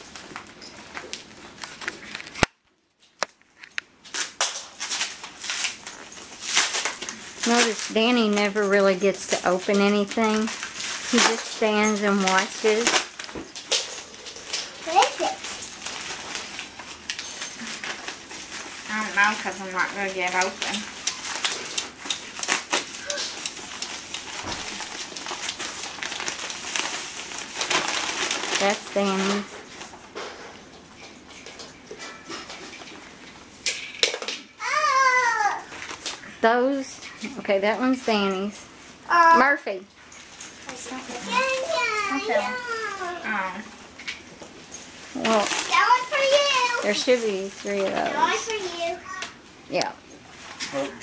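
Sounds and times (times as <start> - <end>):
gift wrapping crinkling: 0.0 - 51.0
plastic package tearing: 3.6 - 8.6, 9.4 - 30.0, 34.0 - 36.3, 45.1 - 48.7.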